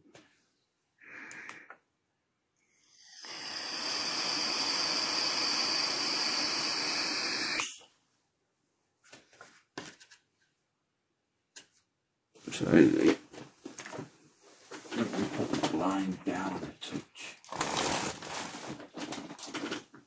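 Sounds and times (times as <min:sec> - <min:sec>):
steady hiss: 0:03.0 - 0:07.8.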